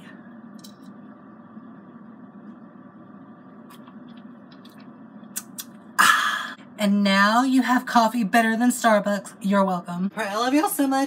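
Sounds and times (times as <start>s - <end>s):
low room noise: 0.0s - 11.0s.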